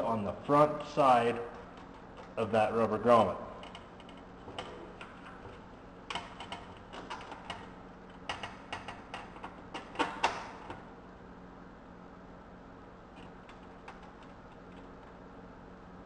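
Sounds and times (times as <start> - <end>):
bolt and nut clicking and tapping: 3.6 - 10.8.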